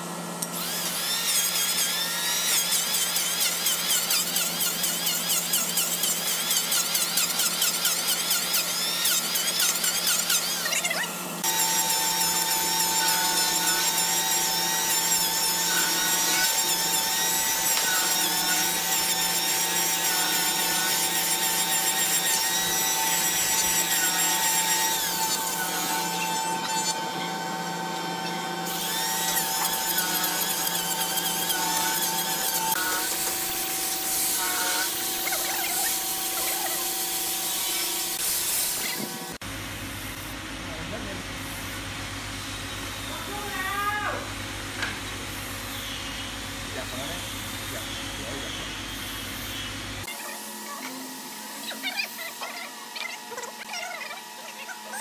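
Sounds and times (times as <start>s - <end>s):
electric hand planer whining: 0.6s - 38.2s.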